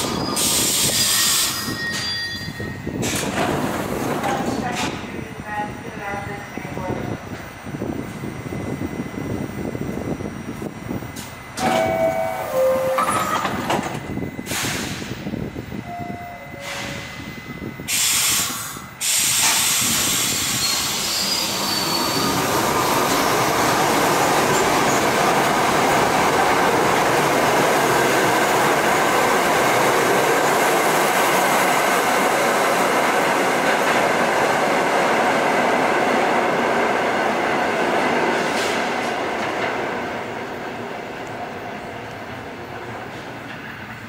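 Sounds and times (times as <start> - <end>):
wheel squeal: 0.0 - 2.9, 20.4 - 22.6
train doors closing: 0.0 - 7.4, 11.1 - 44.0
subway train running past: 0.0 - 44.0.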